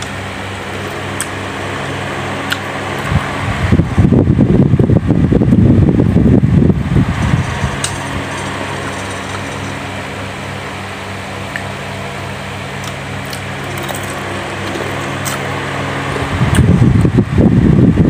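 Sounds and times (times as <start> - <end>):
fan motor humming: 0.0 - 18.0
chewing fried chicken: 12.8 - 16.7.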